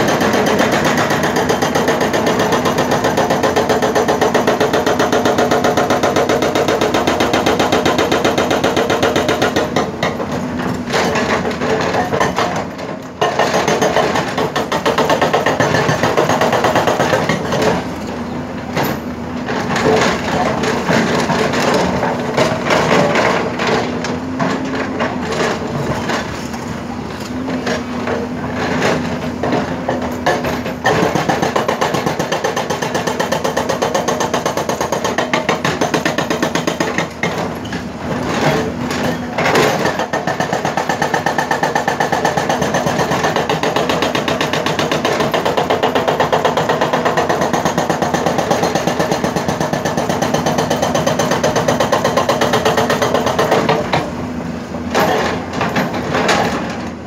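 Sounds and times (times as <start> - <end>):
hydraulic breaker hammering rock: 0.0 - 57.0.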